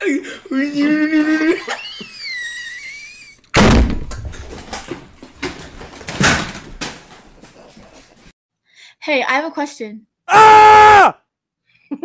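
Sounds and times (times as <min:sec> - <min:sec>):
heavy thump: 0:03.6 - 0:04.7.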